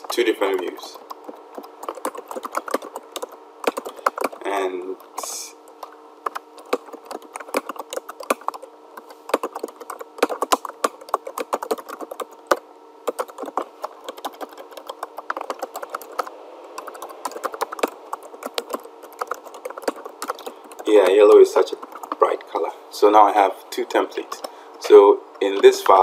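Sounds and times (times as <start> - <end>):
faint steady hum: 0.0 - 26.0
keyboard key clicks: 13.1 - 21.2.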